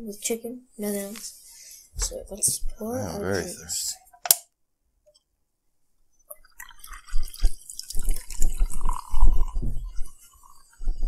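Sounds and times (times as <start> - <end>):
carbonation fizzing: 6.3 - 10.6
soda pouring into glasses: 6.4 - 10.7.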